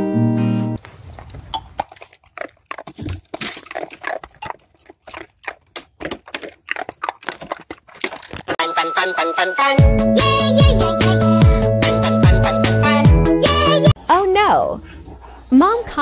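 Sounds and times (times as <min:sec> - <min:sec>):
dog crunching icicles: 0:00.8 - 0:08.6.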